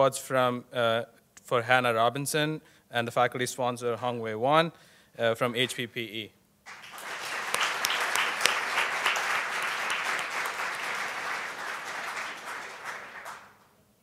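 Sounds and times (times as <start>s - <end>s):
audience applauding: 6.7s - 13.6s.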